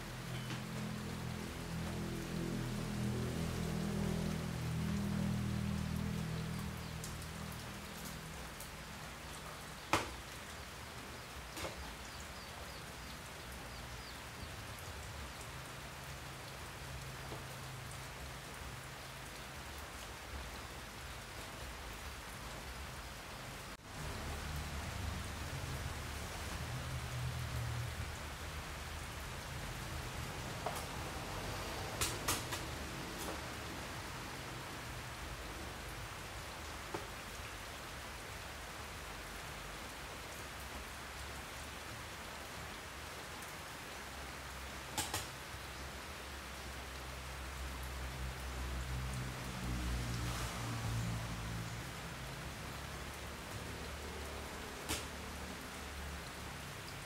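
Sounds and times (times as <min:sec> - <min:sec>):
steady rain-like hiss: 0:00.0 - 0:57.0.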